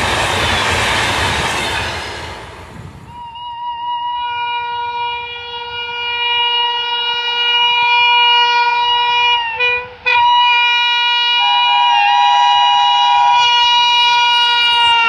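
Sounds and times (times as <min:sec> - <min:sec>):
locomotive horn blast: 0:03.1 - 0:15.0
lower horn tone: 0:03.1 - 0:15.0.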